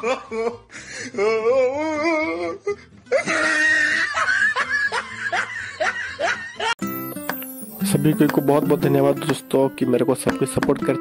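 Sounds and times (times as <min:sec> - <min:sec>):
several people laughing: 0:00.0 - 0:00.7, 0:03.1 - 0:06.8
person laughing high and wavering: 0:03.1 - 0:06.8.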